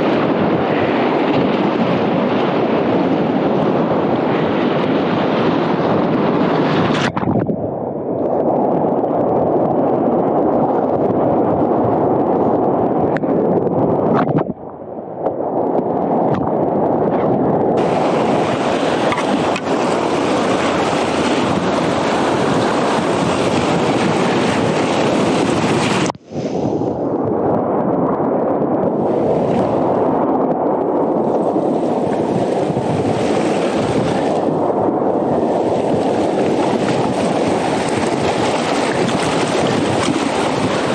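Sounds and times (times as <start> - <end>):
wind on microphone: 0.0 - 40.9
whitewater rushing: 17.8 - 26.2, 29.0 - 30.0, 31.2 - 40.9.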